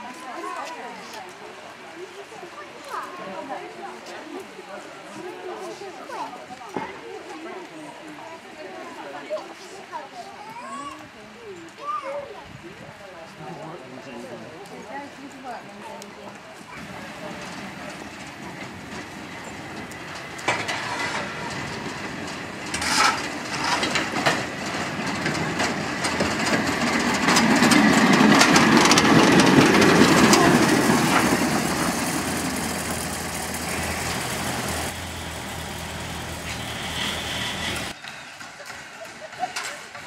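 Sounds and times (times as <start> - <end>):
diesel rail vehicle engine: 16.2 - 40.0
wheels clicking over rail joints: 16.4 - 40.0.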